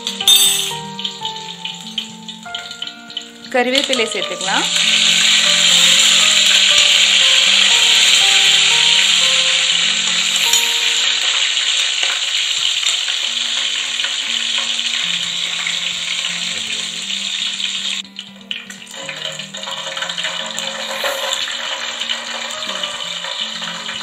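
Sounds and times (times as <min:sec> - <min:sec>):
soft background music: 0:00.0 - 0:24.0
leaves sizzling in hot oil: 0:00.7 - 0:24.0.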